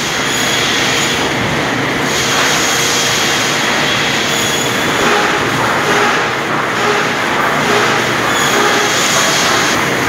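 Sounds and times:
woodworking machinery running: 0.0s - 10.0s
faint machine whines: 2.2s - 9.9s.

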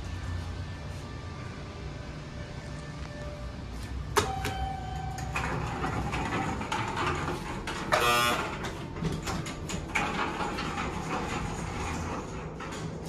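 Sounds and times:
elevator button beeps: 4.1s - 5.8s.

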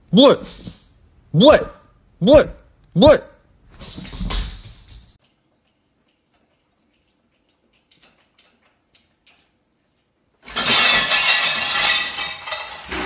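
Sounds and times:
dog licking plates: 5.2s - 9.3s
crockery crashing and clattering: 10.4s - 13.0s
dishes clinking: 10.4s - 13.0s.

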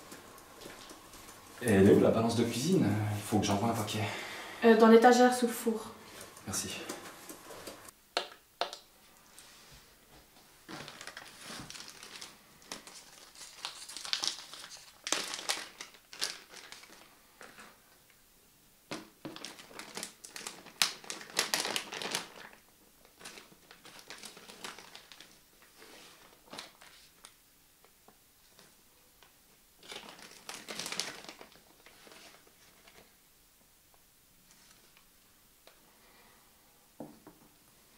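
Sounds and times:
plastic bag crinkling: 0.0s - 2.8s, 10.6s - 17.8s, 18.9s - 27.4s, 29.8s - 33.1s.

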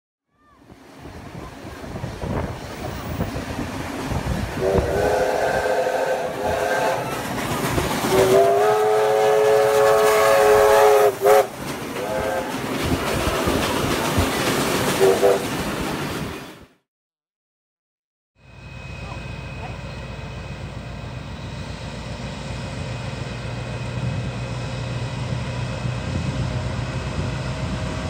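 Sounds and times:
steam locomotive working: 0.6s - 16.7s, 18.4s - 28.0s
steam whistle blasts: 4.6s - 7.3s, 8.0s - 12.6s, 15.0s - 15.5s.

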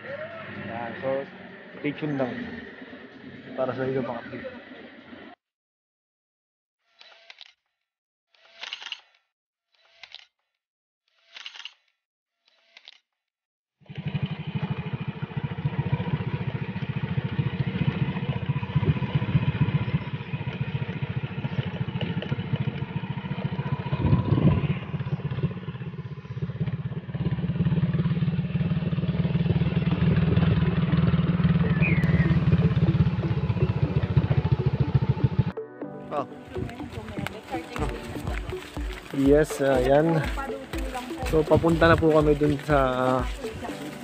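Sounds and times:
motorcycle engine running: 13.8s - 35.6s, 36.4s - 44.0s.

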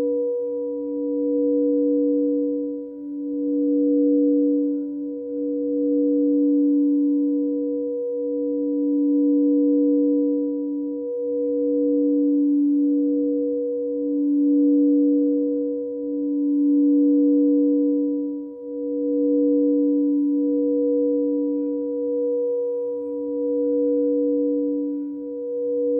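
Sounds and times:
crystal singing bowls ringing: 0.0s - 25.9s.

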